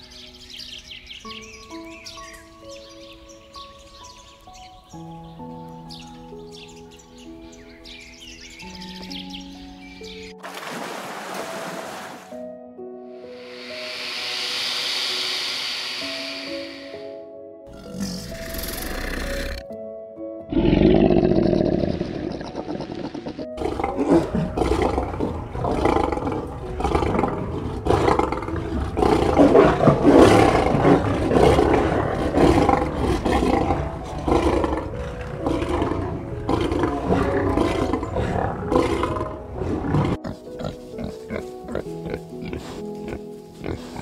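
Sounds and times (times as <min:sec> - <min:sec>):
soft background music: 0:00.0 - 0:44.0
lion roaring: 0:20.5 - 0:40.3.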